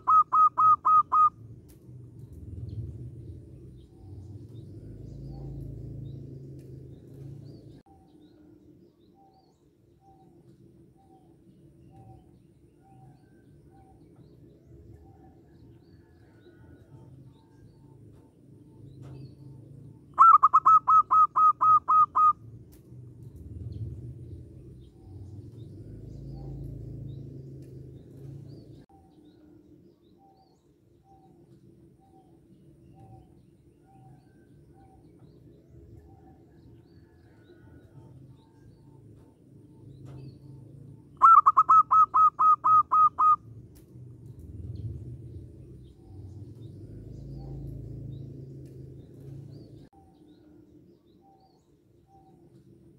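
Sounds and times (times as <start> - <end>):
dove cooing: 0.0 - 1.4, 20.1 - 22.4, 41.2 - 43.5
faint distant bird notes: 0.0 - 52.9
low background rumble: 1.3 - 9.0, 22.3 - 30.0, 42.6 - 51.0.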